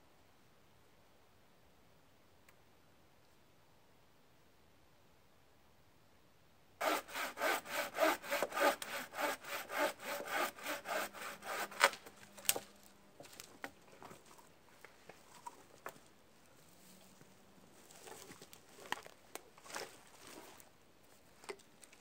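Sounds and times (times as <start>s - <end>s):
bow saw cutting a branch: 6.8s - 12.6s
sharp crack of wood: 11.6s - 12.7s.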